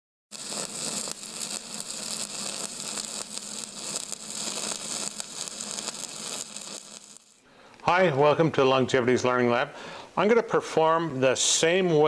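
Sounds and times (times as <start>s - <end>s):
welding arc crackling and sizzling: 0.3s - 7.5s.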